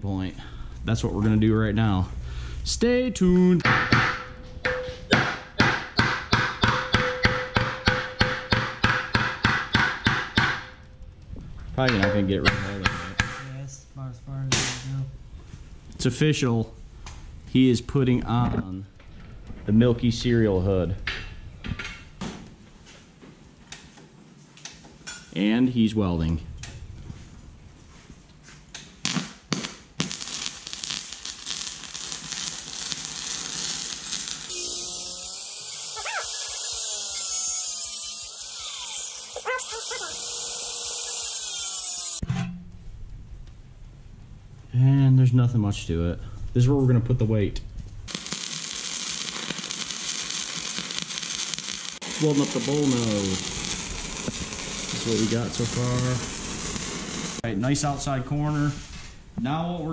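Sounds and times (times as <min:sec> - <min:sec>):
arc welding crackle: 0:28.8 - 0:42.2, 0:48.1 - 0:57.9
welding arc sputters: 0:29.0 - 0:42.2, 0:48.1 - 0:57.5.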